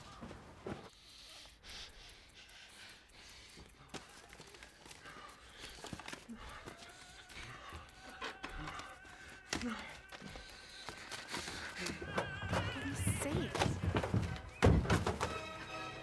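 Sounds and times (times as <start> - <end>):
man breathing: 0.0 - 12.8
paper rustling and shuffling: 4.0 - 7.6.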